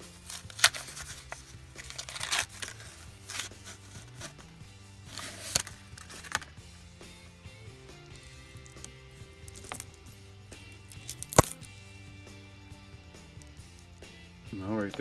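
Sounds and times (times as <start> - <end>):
background music: 0.0 - 15.0
paper wrapper tearing: 1.8 - 3.6.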